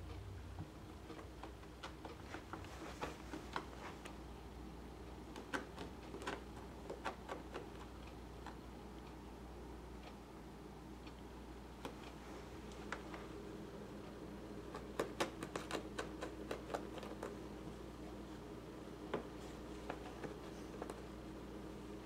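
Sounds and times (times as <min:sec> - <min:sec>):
cat pawing on cloth mat: 0:01.2 - 0:04.2.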